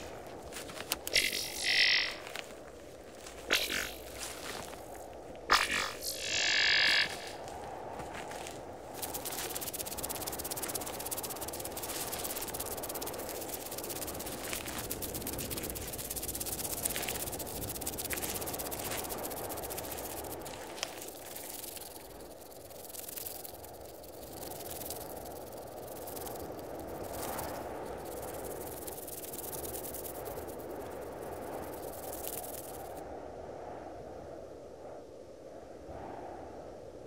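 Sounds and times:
hissing rustling noise: 0:00.0 - 0:33.0
faint clicks: 0:00.6 - 0:02.5.

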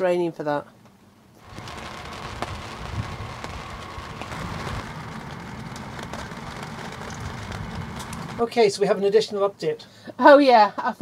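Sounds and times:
low rumble: 0:01.4 - 0:08.5
rain drops ticking: 0:01.4 - 0:08.5
rain hiss: 0:01.4 - 0:08.9.

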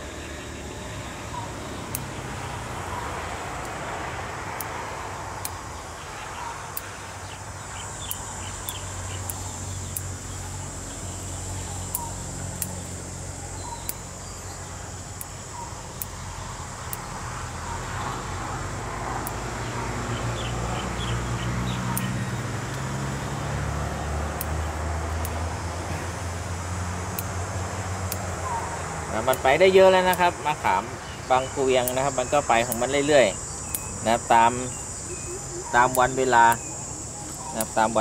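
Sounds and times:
faint bird chirps: 0:06.0 - 0:14.8, 0:30.6 - 0:38.0.

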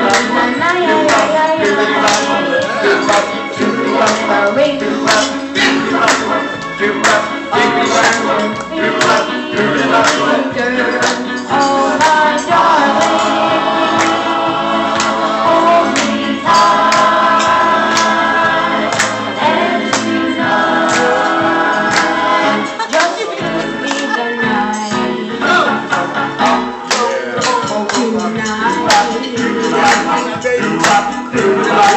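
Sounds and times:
backing music with beat: 0:00.0 - 0:31.9
boy singing into microphone: 0:23.0 - 0:25.7, 0:27.2 - 0:30.4.

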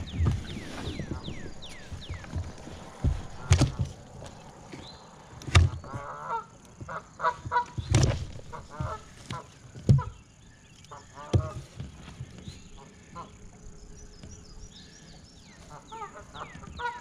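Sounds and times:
geese honking: 0:05.8 - 0:10.2, 0:15.5 - 0:17.0.

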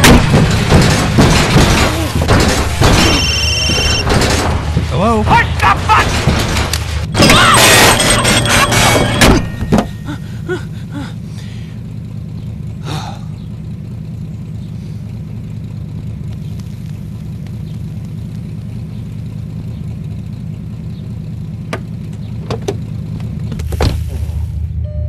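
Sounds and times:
car engine idling: 0:00.0 - 0:25.0
short high squeak: 0:03.0 - 0:04.1.

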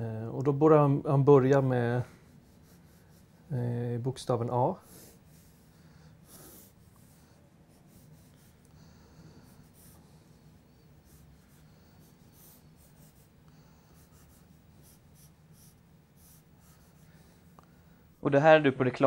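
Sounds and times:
pencil scratching on paper: 0:02.1 - 0:03.5, 0:04.8 - 0:17.6.

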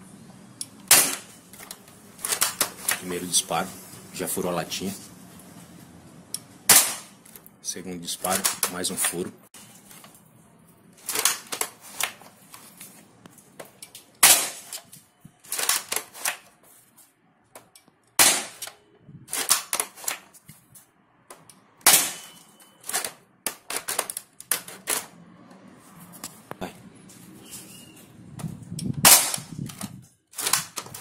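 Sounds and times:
rifle clicks and clatter: 0:00.8 - 0:03.2, 0:08.2 - 0:09.2, 0:11.0 - 0:16.5, 0:17.6 - 0:20.5, 0:22.8 - 0:25.1, 0:28.4 - 0:31.0
airsoft rifle firing sharp cracks: 0:00.9 - 0:01.4, 0:06.7 - 0:07.2, 0:14.2 - 0:14.8, 0:18.2 - 0:18.7, 0:21.8 - 0:22.3, 0:29.0 - 0:29.5.

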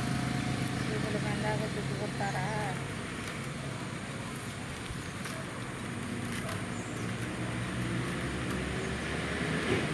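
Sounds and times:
distant road traffic hum: 0:00.0 - 0:09.9
bamboo strips clicking and rustling: 0:02.1 - 0:09.9.

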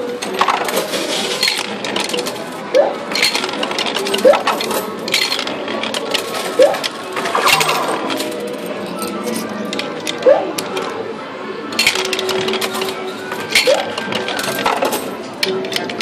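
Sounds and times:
arcade noise: 0:00.0 - 0:16.0
coins clinking into arcade machine: 0:00.0 - 0:16.0.

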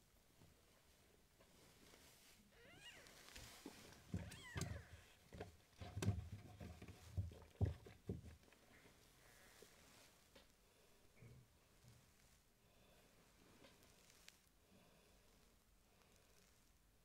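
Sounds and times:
soft knocks and bumps: 0:03.3 - 0:09.1.

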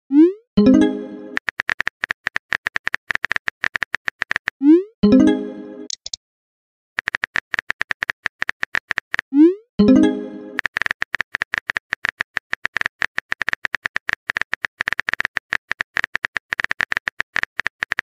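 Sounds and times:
phone keyboard typing clicks: 0:01.3 - 0:04.5, 0:05.9 - 0:06.2, 0:07.0 - 0:09.2, 0:10.6 - 0:18.0.

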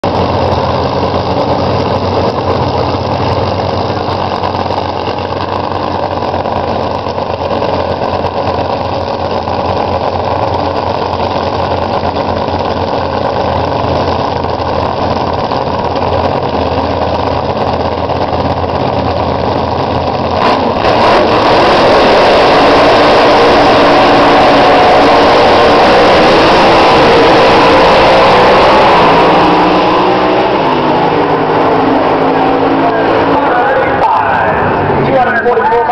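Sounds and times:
race car engines: 0:00.0 - 0:35.9.

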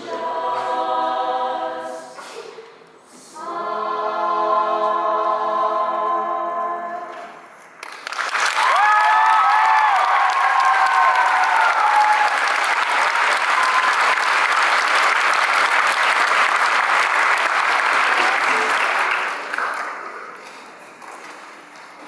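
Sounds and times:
choir holding a chord: 0:00.0 - 0:02.2, 0:03.2 - 0:07.2
audience applauding: 0:07.8 - 0:21.0.

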